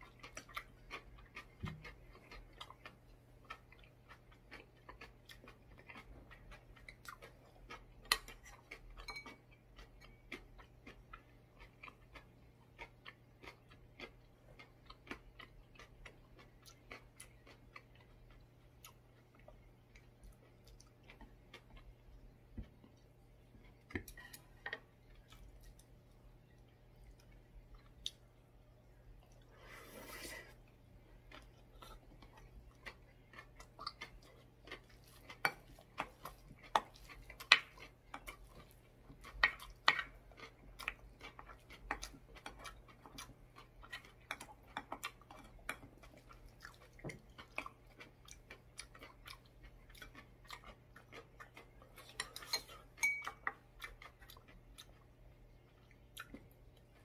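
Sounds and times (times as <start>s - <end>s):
person chewing: 0.0s - 57.0s
utensils tapping against bowl: 9.0s - 9.3s, 52.2s - 53.6s.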